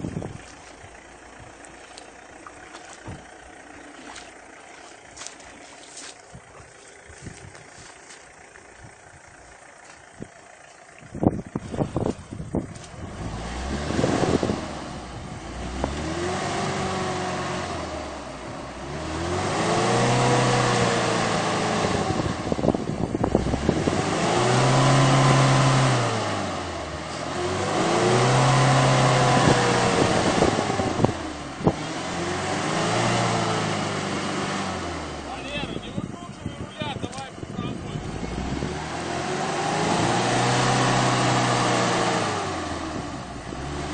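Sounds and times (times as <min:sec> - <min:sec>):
engine revving hard: 0:12.9 - 0:35.9, 0:37.6 - 0:43.9.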